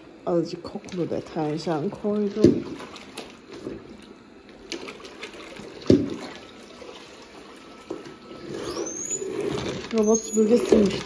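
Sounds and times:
mop spinner whine: 0.0s - 11.0s
water sloshing in mop bucket: 0.0s - 11.0s
mop knocking against bucket: 5.8s - 6.2s.

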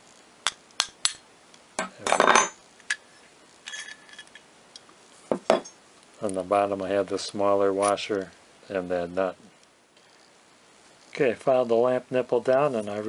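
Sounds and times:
metal nuts and washers clinking: 1.8s - 3.0s, 3.6s - 4.5s
metallic ring: 1.8s - 4.4s, 5.4s - 5.8s.

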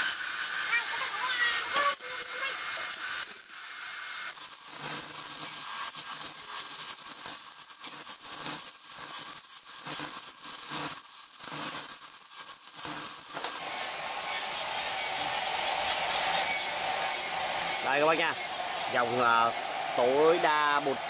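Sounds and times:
welding arc crackling and hissing: 0.0s - 21.0s.

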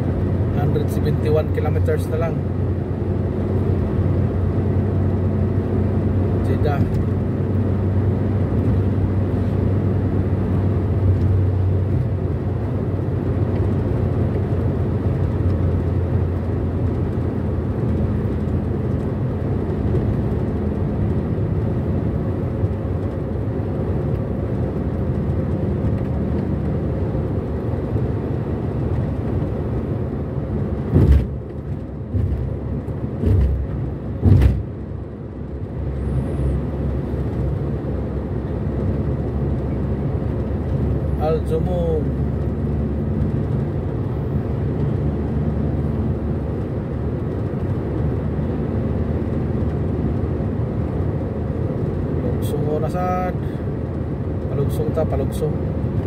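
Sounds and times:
car road and engine noise: 0.0s - 56.0s
short thumps: 30.9s - 31.4s, 32.1s - 32.6s, 33.2s - 34.7s.

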